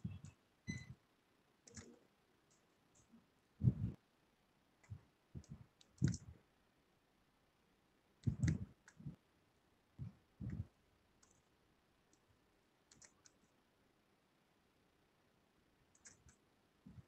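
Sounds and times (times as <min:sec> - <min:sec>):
computer mouse clicking: 0:01.6 - 0:03.1, 0:04.8 - 0:06.3, 0:08.2 - 0:09.1, 0:11.2 - 0:11.5, 0:12.9 - 0:13.5, 0:15.9 - 0:16.4
soft low thumps: 0:03.6 - 0:04.0, 0:08.2 - 0:09.2, 0:10.0 - 0:10.8.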